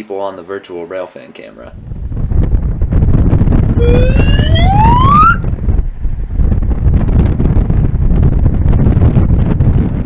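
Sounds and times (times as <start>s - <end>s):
wind buffeting microphone: 1.8s - 10.0s
rising pitched tone: 3.8s - 5.5s.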